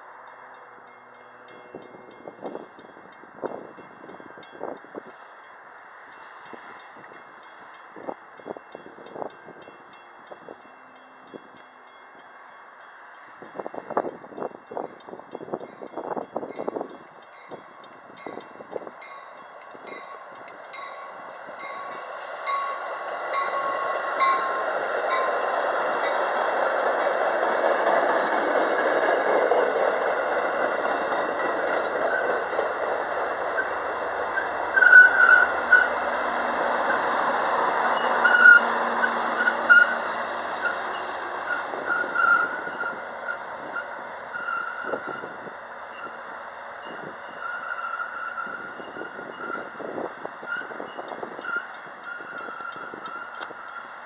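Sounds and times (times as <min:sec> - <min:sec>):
train wheels rumbling on rails: 0:00.0 - 0:54.0
high wheel squeals: 0:31.7 - 0:32.5, 0:33.4 - 0:54.0.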